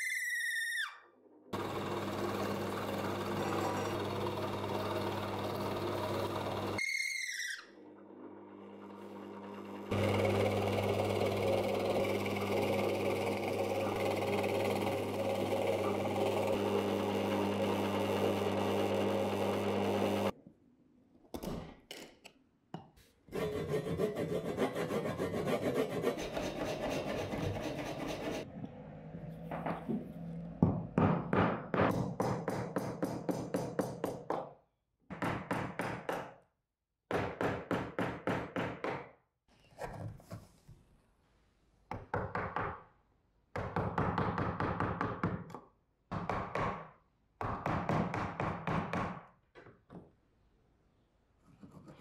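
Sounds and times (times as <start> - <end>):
drill press motor humming: 1.6 - 6.8, 7.8 - 20.3
hand tool scraping wood: 23.3 - 28.5.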